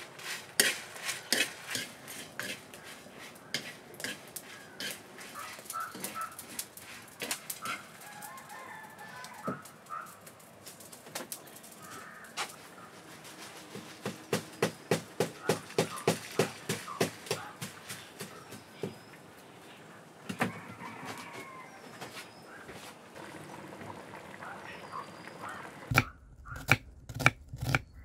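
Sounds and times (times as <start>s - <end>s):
chickens clucking: 2.6s - 6.4s
small birds chirping: 2.6s - 20.6s, 24.4s - 26.7s.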